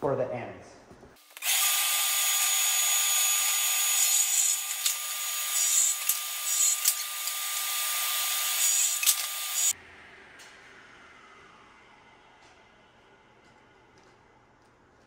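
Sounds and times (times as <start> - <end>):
power saw cutting wood: 1.3 - 9.8.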